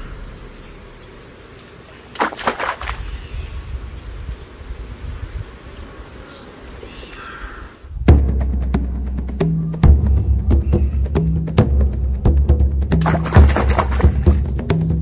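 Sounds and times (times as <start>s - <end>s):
insects buzzing: 0.0s - 12.4s
bird call: 5.7s - 7.8s, 9.3s - 11.2s.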